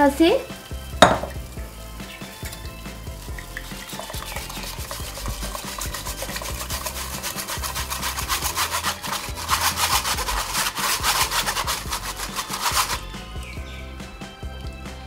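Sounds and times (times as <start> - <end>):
whisk scraping in mesh strainer: 3.8 - 13.2.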